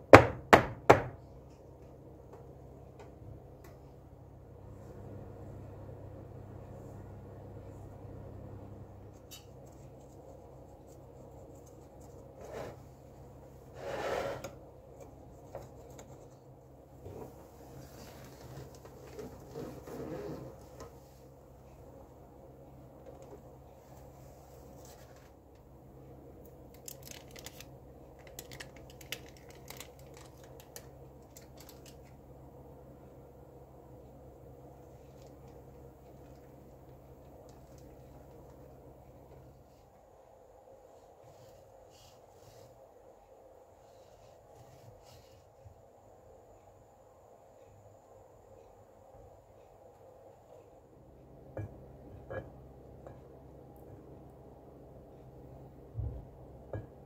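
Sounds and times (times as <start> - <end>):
low steady hum: 0.0 - 57.0
baking paper crackling: 26.7 - 32.2.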